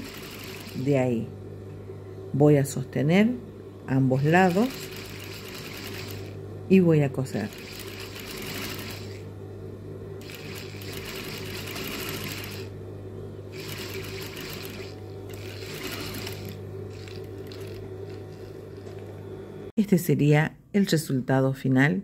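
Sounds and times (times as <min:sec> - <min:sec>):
sewing machine motor humming: 0:00.0 - 0:00.9, 0:04.2 - 0:06.4, 0:07.3 - 0:09.3, 0:10.2 - 0:12.8, 0:13.5 - 0:19.2
sewing machine stitching: 0:00.0 - 0:00.9, 0:04.2 - 0:06.4, 0:07.3 - 0:09.2, 0:10.2 - 0:12.7, 0:13.5 - 0:19.0.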